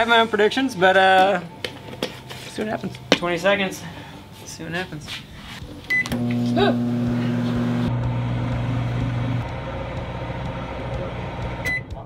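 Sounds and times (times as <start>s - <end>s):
microwave humming with fan: 6.1s - 11.8s
microwave keypad beep: 11.6s - 11.9s.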